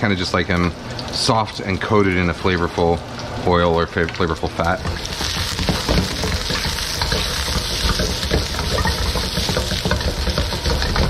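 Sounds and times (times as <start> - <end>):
potatoes sizzling in oil: 0.0 - 11.0
stirring clicks: 4.0 - 11.0.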